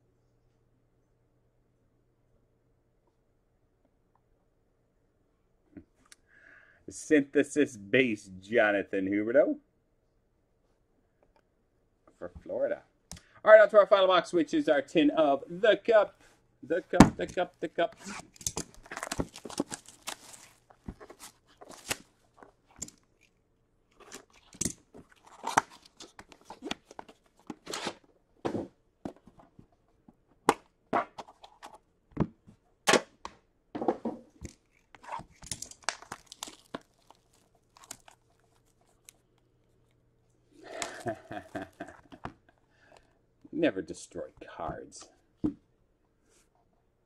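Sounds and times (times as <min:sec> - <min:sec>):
plastic wrap tearing and crinkling: 0:18.0 - 0:22.5, 0:23.9 - 0:28.0, 0:34.6 - 0:39.8
handling clicks and crackles: 0:18.1 - 0:27.8, 0:34.4 - 0:40.0.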